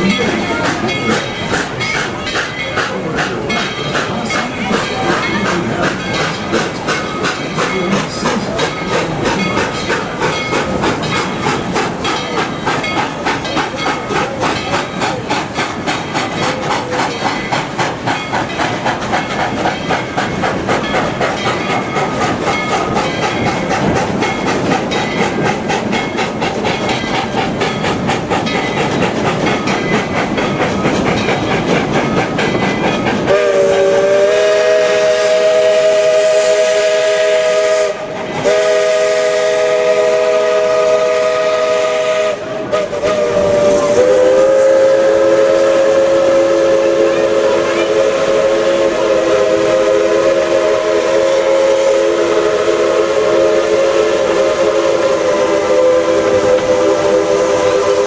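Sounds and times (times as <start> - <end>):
steam train chugging: 0.0 - 58.0
steam train whistle: 33.2 - 58.0.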